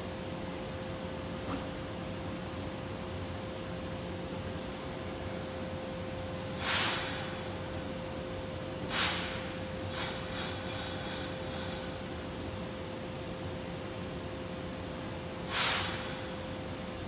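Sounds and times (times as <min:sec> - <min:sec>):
steady hum with high tone: 0:00.0 - 0:17.0
compressed air hissing: 0:06.6 - 0:07.6, 0:08.9 - 0:11.9, 0:15.5 - 0:16.4.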